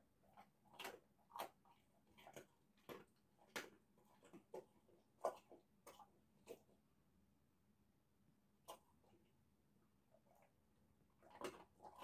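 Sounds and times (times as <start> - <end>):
dog crunching dry treats: 0.2 - 6.8, 11.1 - 12.0.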